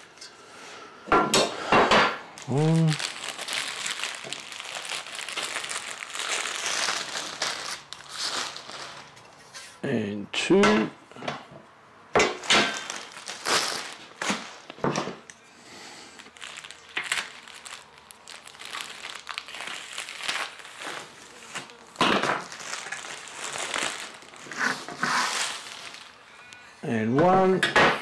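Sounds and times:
plastic wrap rustling: 2.0s - 9.5s, 12.2s - 15.3s, 16.0s - 26.7s.

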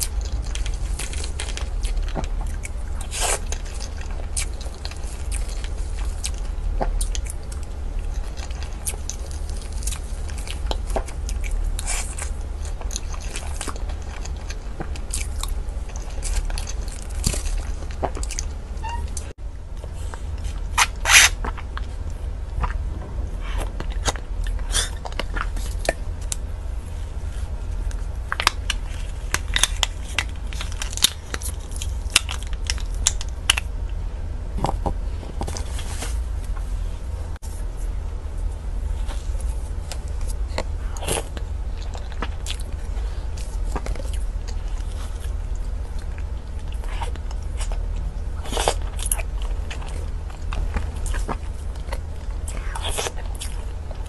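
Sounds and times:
mouth chewing and smacking: 0.0s - 26.5s, 38.9s - 54.0s
steady low hum: 0.0s - 54.0s
plastic crinkling: 27.7s - 33.7s.

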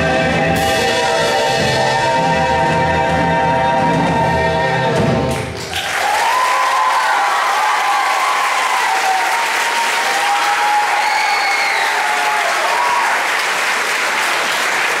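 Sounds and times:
audience applauding: 5.3s - 15.0s
cheering voices: 5.6s - 15.0s.

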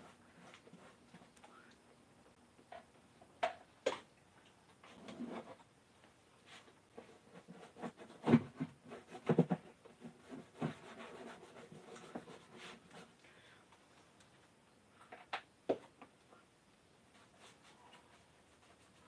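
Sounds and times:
paintbrush strokes scratching: 10.2s - 13.1s, 17.1s - 19.0s.

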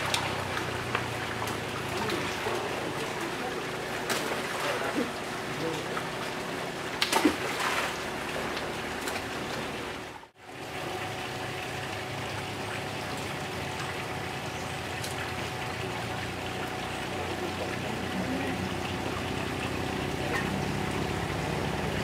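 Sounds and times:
water rushing: 0.0s - 22.0s.

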